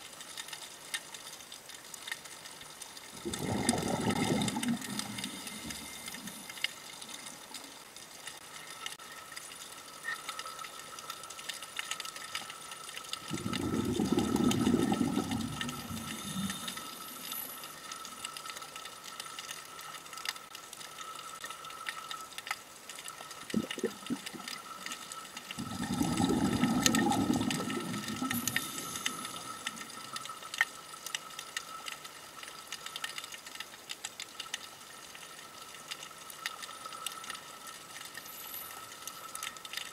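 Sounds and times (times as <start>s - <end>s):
small clicks: 0.0s - 39.9s
faint steady whine: 0.1s - 39.9s
exhaled bubbles underwater: 3.1s - 6.7s, 13.1s - 18.2s, 23.4s - 30.5s.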